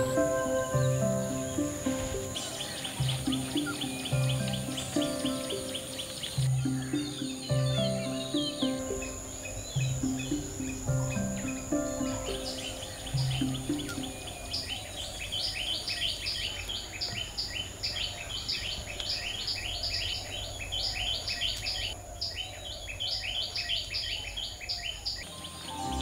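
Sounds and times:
high insect whine: 0.0s - 16.2s
birds chirping: 0.0s - 26.0s.

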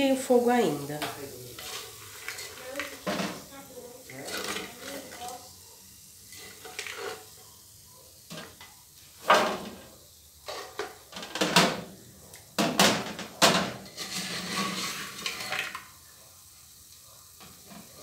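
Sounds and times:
spoon scraping metal pot: 1.5s - 3.2s, 13.8s - 15.8s.

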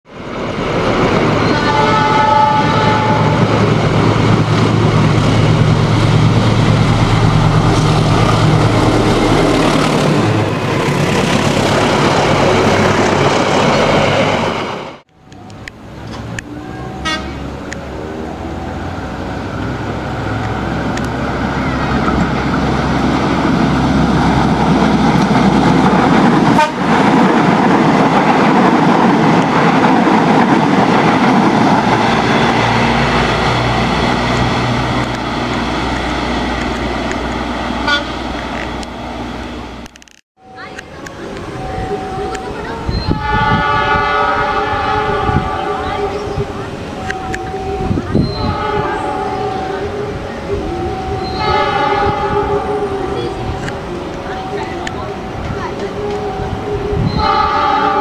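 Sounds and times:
second train running past: 0.1s - 58.0s
train coaches rumbling on rails: 0.1s - 58.0s
diesel engine hum: 0.2s - 58.0s
train horn chord: 1.4s - 3.6s, 16.9s - 17.5s, 26.5s - 26.9s, 37.8s - 38.2s, 41.6s - 46.3s, 47.0s - 58.0s.

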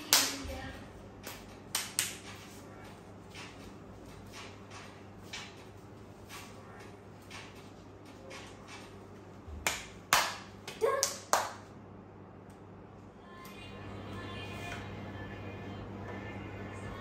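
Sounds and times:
sharp hand claps: 0.0s - 0.5s, 1.2s - 2.4s, 9.6s - 11.7s.

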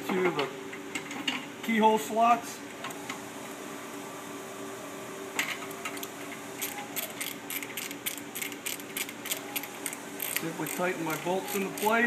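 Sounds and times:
steady shop hum: 0.0s - 12.0s
wrench ratchet clicks: 7.0s - 12.0s.

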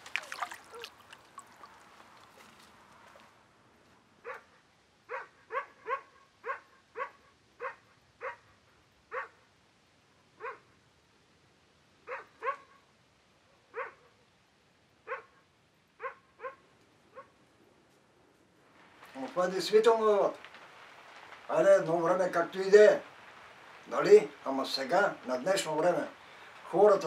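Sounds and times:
dog barking: 4.2s - 9.5s, 10.4s - 10.8s, 12.0s - 12.9s, 13.5s - 14.3s, 15.0s - 17.4s.

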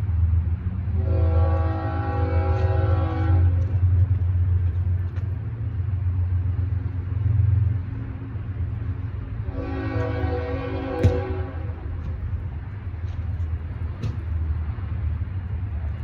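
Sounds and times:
train rumble: 0.0s - 16.0s
locomotive air horn: 0.9s - 3.8s, 9.4s - 11.9s.

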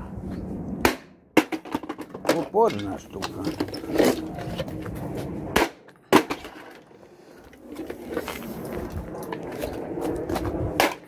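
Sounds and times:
footsteps on gritty concrete: 2.8s - 5.6s, 7.4s - 11.0s.

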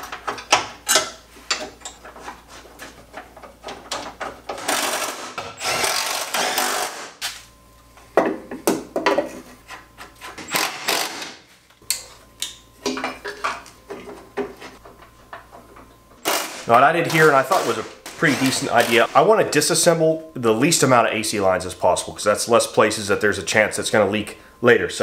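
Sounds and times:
power tool running: 4.6s - 7.5s, 10.4s - 11.4s, 16.2s - 19.3s.

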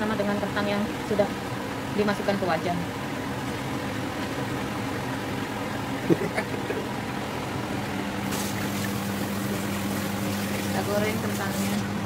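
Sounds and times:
steady low hum: 0.0s - 12.0s
food deep-frying in hot oil: 8.2s - 12.0s.

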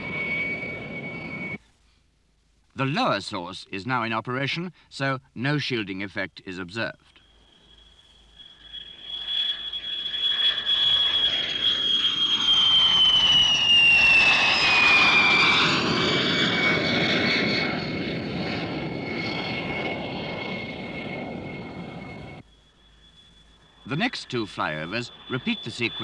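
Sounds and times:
high-pitched whistle: 0.0s - 1.6s, 7.1s - 16.8s, 20.4s - 26.0s
jet aircraft flying past: 0.0s - 1.6s, 7.2s - 26.0s.

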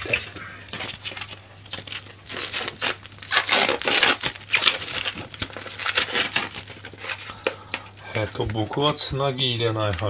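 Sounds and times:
plastic cling film crinkling: 0.0s - 10.0s.

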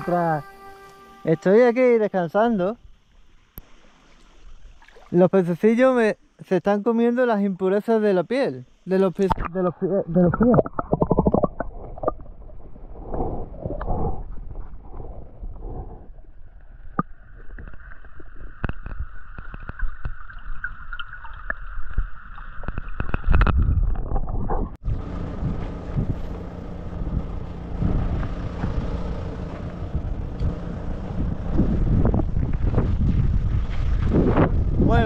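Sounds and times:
muffled underwater rumble: 9.2s - 20.3s, 21.5s - 35.0s
sharp underwater clicks: 10.3s - 12.3s, 16.9s - 24.6s
wind on microphone: 22.7s - 35.0s.

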